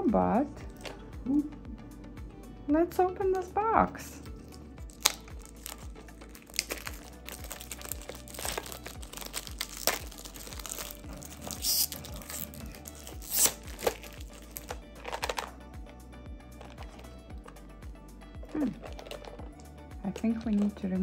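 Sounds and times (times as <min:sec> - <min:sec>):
background music: 0:00.0 - 0:21.0
plastic wrap crinkling: 0:04.8 - 0:15.5, 0:18.5 - 0:20.8.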